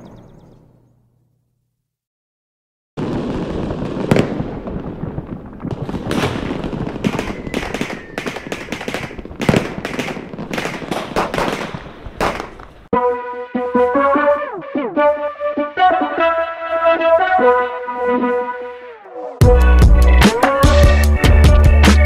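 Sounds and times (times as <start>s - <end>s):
fireworks crackling: 3.0s - 12.9s
fireworks shells bursting: 3.7s - 12.9s.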